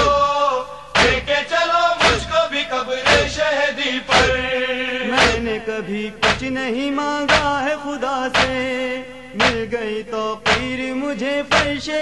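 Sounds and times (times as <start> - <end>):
men chanting a lament: 0.0 - 12.0
chest-beating thumps: 1.0 - 1.4, 2.0 - 2.4, 3.0 - 3.4, 4.1 - 4.4, 5.2 - 5.6, 6.2 - 6.6, 7.3 - 7.7, 8.4 - 8.7, 9.4 - 9.8, 10.4 - 10.8, 11.5 - 11.8.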